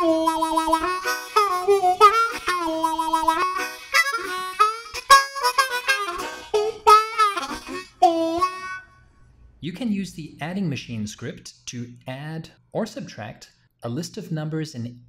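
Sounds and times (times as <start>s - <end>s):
harmonica music: 0.0s - 9.2s.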